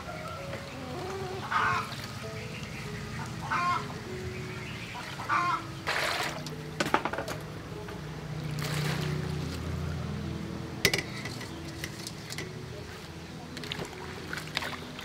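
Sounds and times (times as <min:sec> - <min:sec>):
water splashing and trickling: 0:00.0 - 0:15.0
metal bowls clinking: 0:10.8 - 0:12.6.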